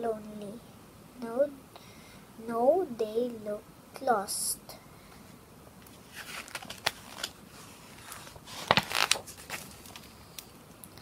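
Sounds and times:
book page turning: 5.9s - 10.2s.

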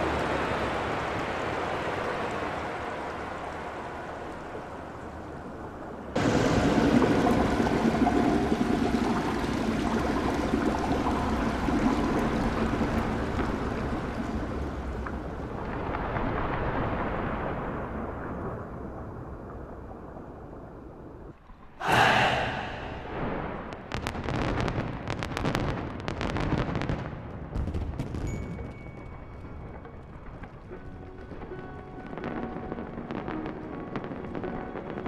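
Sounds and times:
fireworks crackling and hissing: 23.0s - 28.8s.

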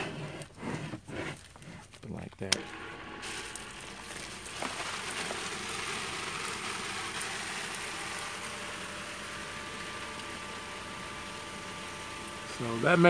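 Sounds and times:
shower water spraying: 3.2s - 13.0s.

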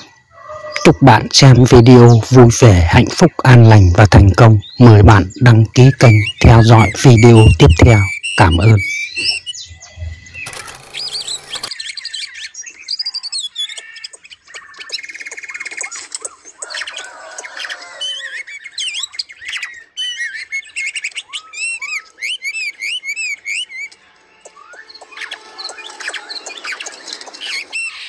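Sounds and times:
small birds chirping and calling: 0.0s - 28.0s.

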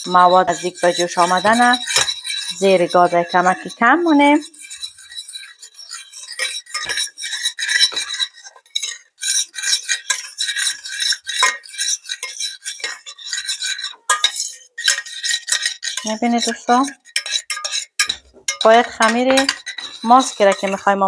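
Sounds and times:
metal spoon scraping saucepan: 0.0s - 21.0s.

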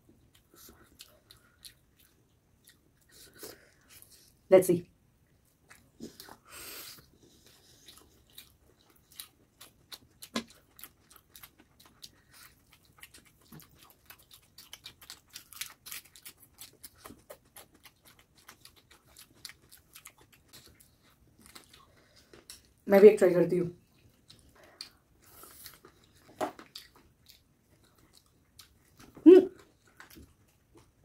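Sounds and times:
chewing with wet mouth clicks: 0.0s - 4.2s, 5.3s - 22.8s, 23.8s - 31.0s.

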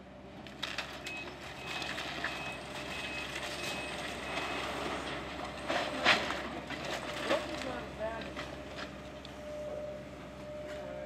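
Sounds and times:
excavator engine hum: 0.0s - 11.0s
debris crunching and clattering: 0.4s - 8.9s.

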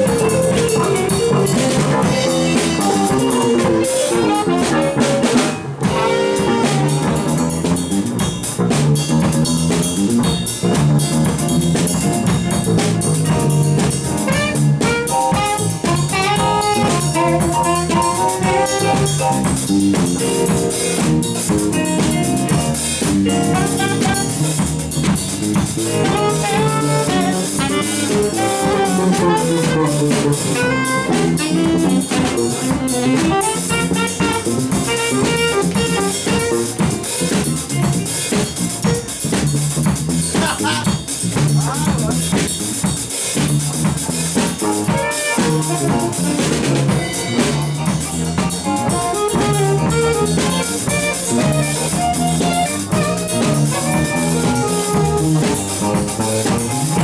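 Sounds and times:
saxophone melody: 0.0s - 7.8s, 13.2s - 25.0s, 25.7s - 37.1s, 44.7s - 57.0s
electric guitar: 0.0s - 8.0s, 11.2s - 39.3s, 44.6s - 57.0s
drum kit with cymbals: 0.0s - 57.0s.

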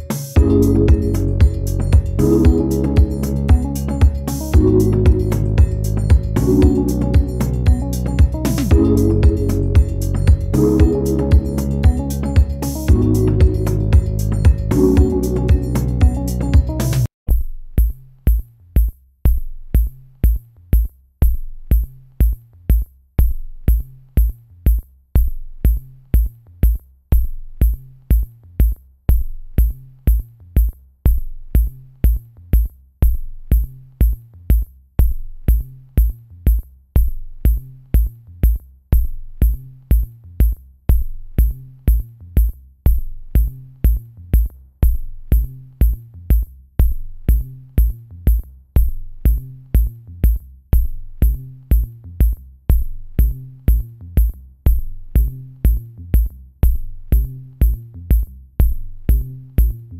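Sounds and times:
repeating bass line: 0.0s - 17.1s
drum machine kick: 0.0s - 59.9s.

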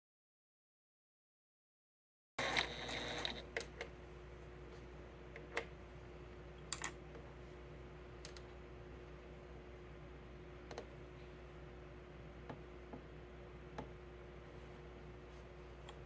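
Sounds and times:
faint steady hum: 2.4s - 16.0s
clicks and light taps: 8.2s - 8.5s, 10.6s - 11.0s.

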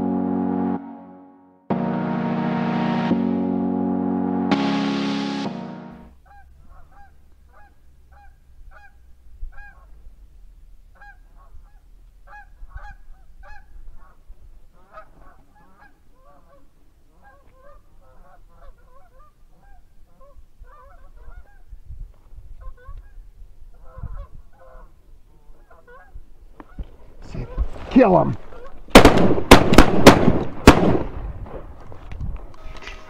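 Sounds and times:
geese honking: 5.4s - 9.0s, 14.8s - 21.7s, 23.8s - 27.6s.

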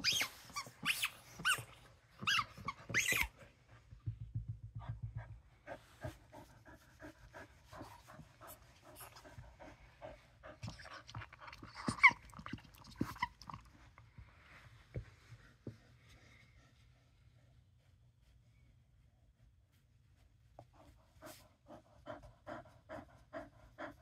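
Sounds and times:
dog panting: 4.7s - 13.8s, 20.7s - 24.0s.

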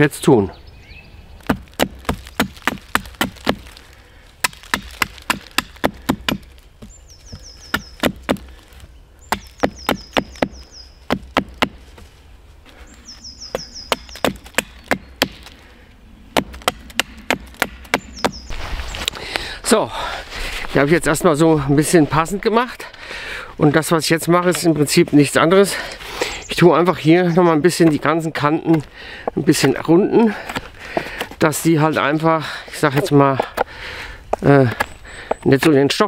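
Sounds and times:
hatchet chopping wood: 1.4s - 3.8s, 4.4s - 8.6s, 9.3s - 11.8s, 13.6s - 15.6s, 16.4s - 18.4s.

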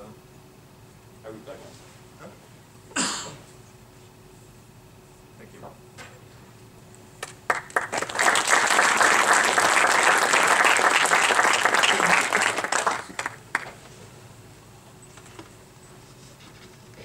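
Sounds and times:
audience applause: 7.5s - 13.7s.

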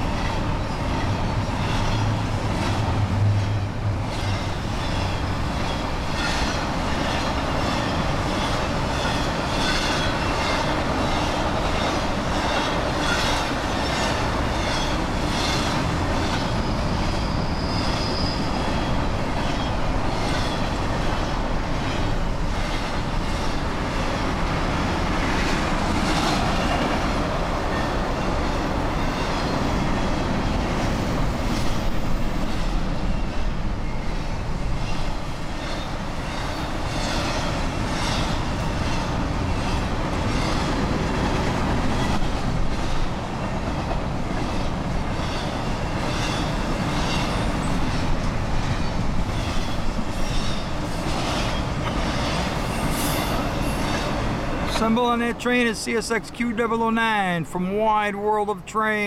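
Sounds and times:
freight train rumble: 0.0s - 59.0s
high wheel squeal: 12.5s - 20.7s, 49.4s - 54.6s.

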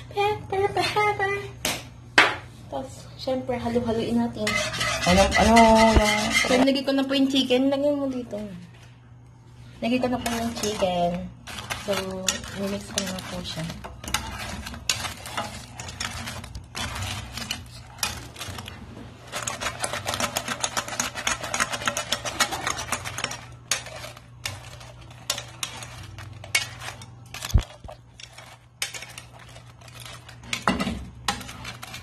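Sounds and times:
utensil scraping a frying pan: 4.2s - 7.0s, 9.8s - 32.0s.

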